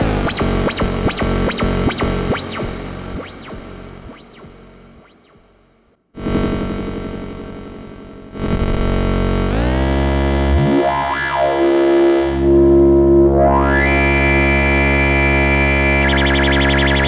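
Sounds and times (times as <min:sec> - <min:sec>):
fast synthesizer flutter: 0:00.0 - 0:05.5
resonant filter sweep: 0:00.0 - 0:05.8, 0:10.4 - 0:17.0
buzzy synthesizer note: 0:00.0 - 0:17.0.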